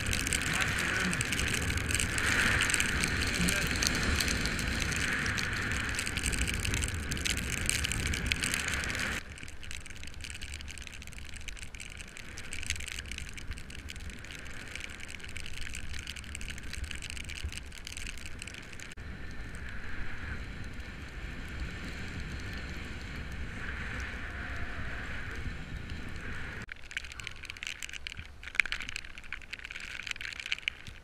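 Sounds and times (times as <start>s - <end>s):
wind rushing over microphone: 0.0s - 9.5s, 16.0s - 29.0s
bike tyres hissing on wet asphalt: 0.0s - 31.0s.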